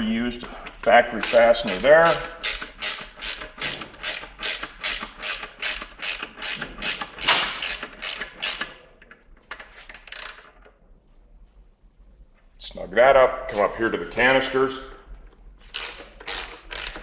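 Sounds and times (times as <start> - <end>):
socket ratchet clicking: 1.2 - 10.7, 15.7 - 17.0.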